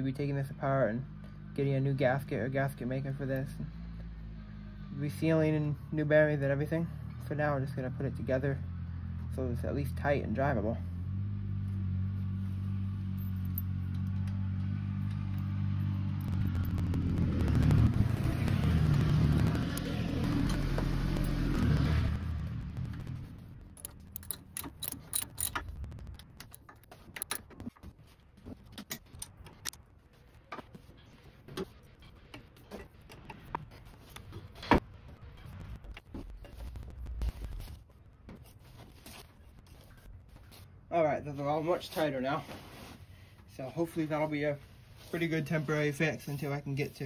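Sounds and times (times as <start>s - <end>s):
engine running: 1.0s - 38.6s
wrench clicking: 23.8s - 27.4s.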